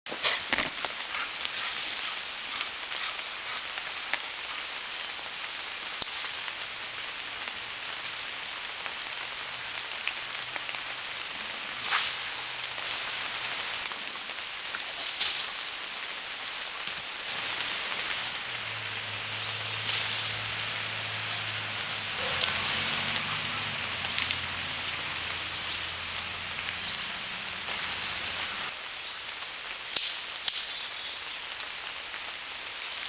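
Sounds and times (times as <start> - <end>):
rustling crackles: 0.1 - 7.7, 8.8 - 27.0
steady outdoor hiss: 0.1 - 33.0
twig snaps: 30.0 - 30.7.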